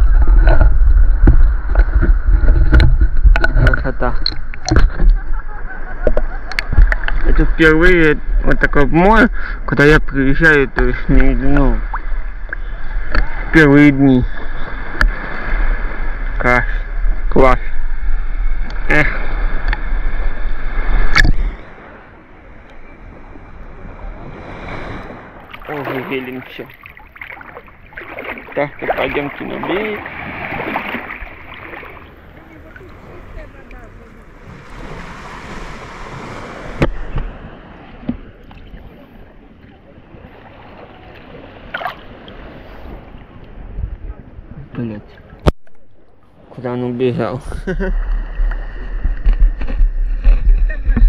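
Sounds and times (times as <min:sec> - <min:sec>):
wind buffeting microphone: 0:00.0 - 0:09.2, 0:10.0 - 0:45.5, 0:47.2 - 0:51.0
small sea waves: 0:00.0 - 0:51.0
water splash: 0:18.9 - 0:21.8, 0:24.4 - 0:39.2, 0:40.1 - 0:43.1.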